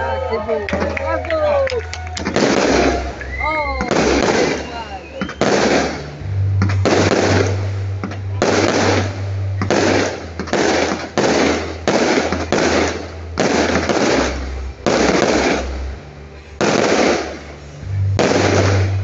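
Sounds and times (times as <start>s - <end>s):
firework shells bursting: 2.1s - 15.9s.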